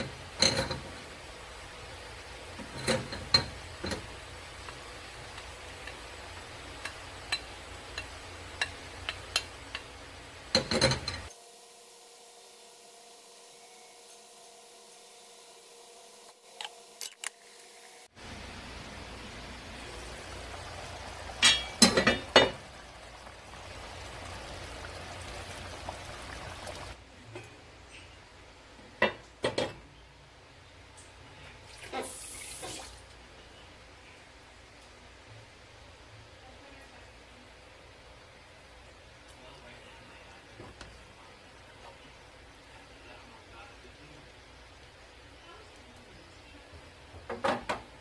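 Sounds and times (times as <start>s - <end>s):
porridge bubbling in pot: 0.0s - 13.5s, 18.1s - 27.0s
pot lid clinking: 21.4s - 22.6s.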